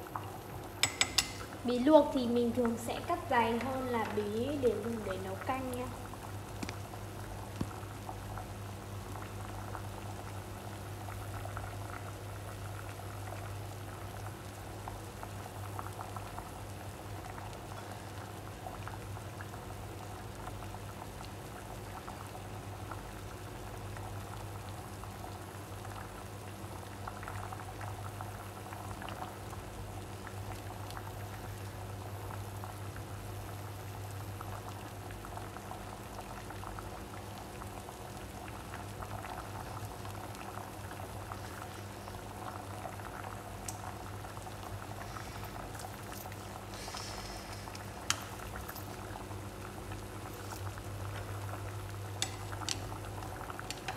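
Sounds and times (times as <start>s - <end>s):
water boiling and bubbling: 0.0s - 53.9s.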